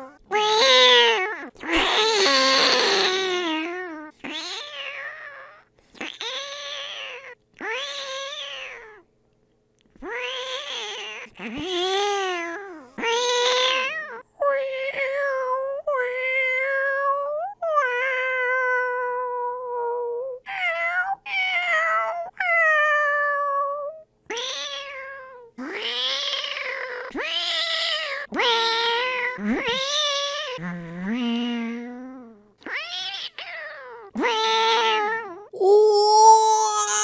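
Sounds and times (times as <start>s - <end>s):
person imitating cat meows: 0.0s - 9.0s, 28.0s - 37.0s.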